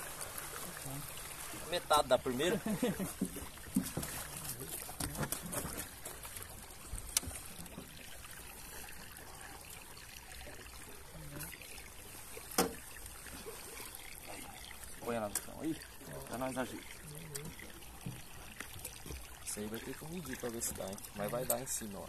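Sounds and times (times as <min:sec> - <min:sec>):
water trickling and splashing: 0:00.0 - 0:22.0.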